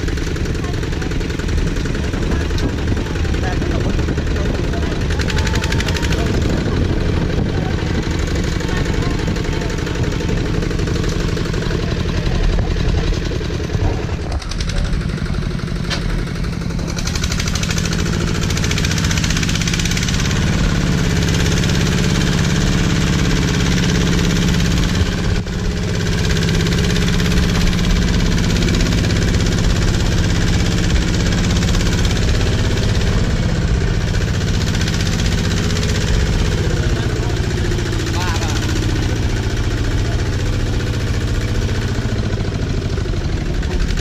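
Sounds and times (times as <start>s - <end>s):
diesel engine chugging: 0.0s - 44.0s.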